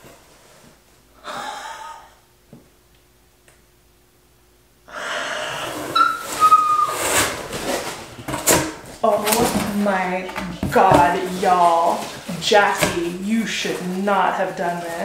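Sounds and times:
woman gasping: 0:01.2 - 0:02.2, 0:04.9 - 0:05.9
woman squealing excitedly: 0:06.0 - 0:07.0.

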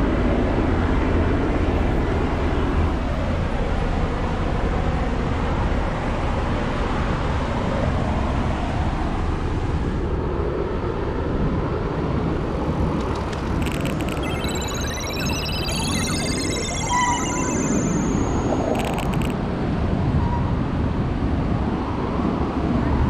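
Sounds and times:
synthetic electronic tones: 0:13.1 - 0:19.4.

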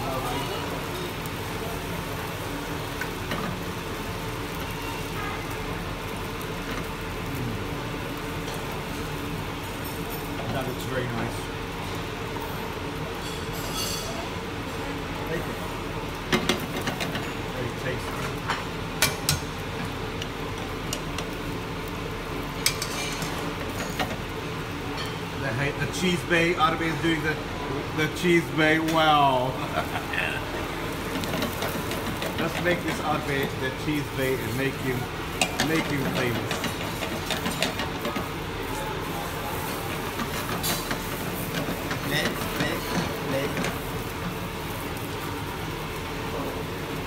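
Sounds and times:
kitchen background noise: 0:00.0 - 0:47.0
omelette sizzling in a frying pan: 0:00.0 - 0:47.0
utensils clicking against frying pan: 0:16.3 - 0:17.5, 0:18.3 - 0:21.4, 0:22.6 - 0:24.3, 0:30.9 - 0:38.8, 0:39.6 - 0:44.4.

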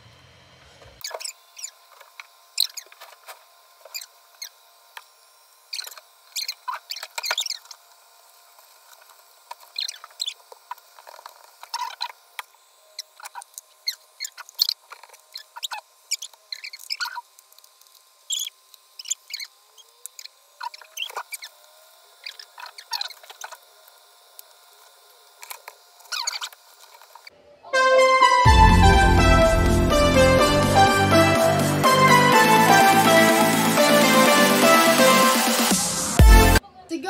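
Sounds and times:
high-pitched squeaks and clicks: 0:01.0 - 0:05.1, 0:05.7 - 0:07.8, 0:08.8 - 0:27.3.

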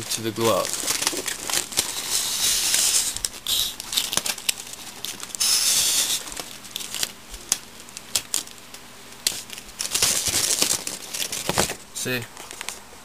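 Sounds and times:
aluminium foil crinkling: 0:00.0 - 0:11.8
tape pulled off roll: 0:00.9 - 0:04.5, 0:05.4 - 0:06.9.

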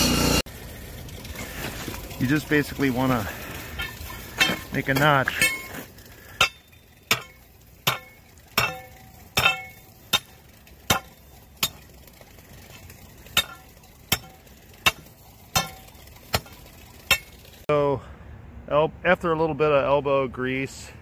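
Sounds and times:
metal bar striking asphalt: 0:03.8 - 0:17.6.

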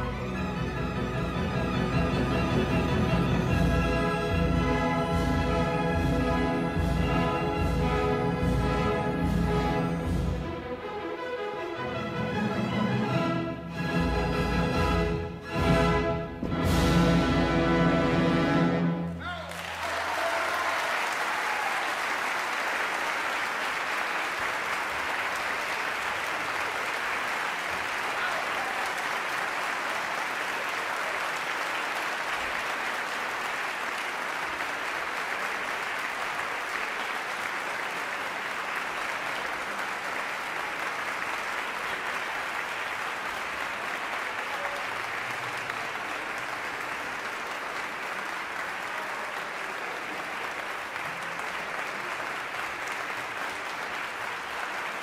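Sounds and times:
audience applauding: 0:19.2 - 0:55.0.

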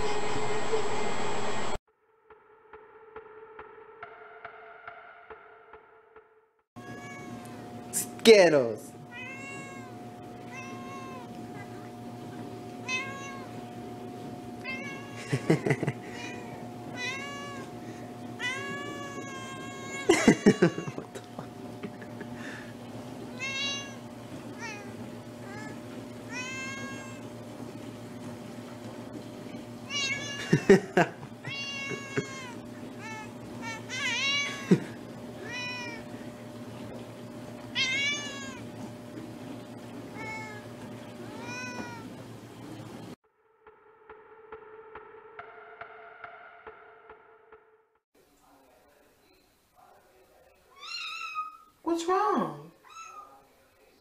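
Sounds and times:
cat meowing: 0:06.8 - 0:07.6, 0:09.1 - 0:12.0, 0:12.8 - 0:13.6, 0:14.6 - 0:17.8, 0:18.4 - 0:21.1, 0:23.3 - 0:27.3, 0:29.9 - 0:30.7, 0:31.4 - 0:34.7, 0:35.4 - 0:36.0, 0:37.8 - 0:38.7, 0:40.1 - 0:40.6, 0:41.3 - 0:42.1, 0:50.8 - 0:51.7, 0:52.8 - 0:53.4.

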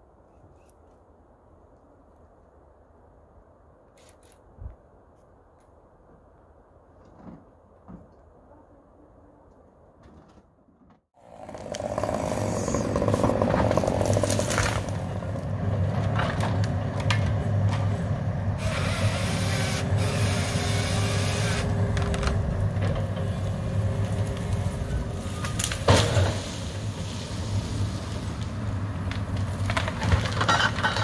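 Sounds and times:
diesel engine and hydraulics: 0:11.2 - 0:31.0
sharp cracks and knocks: 0:25.4 - 0:26.5, 0:28.4 - 0:31.0.

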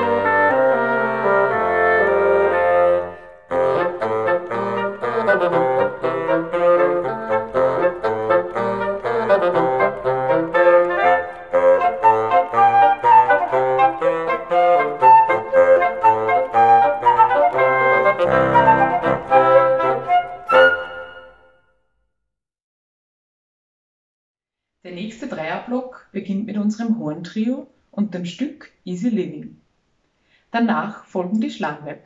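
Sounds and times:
oboes and bassoons playing: 0:00.0 - 0:21.5.

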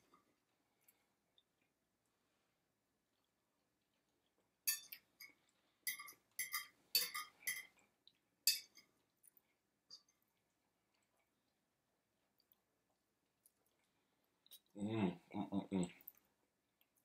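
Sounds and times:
forks clinking against dishes: 0:04.7 - 0:07.8, 0:08.5 - 0:08.8.

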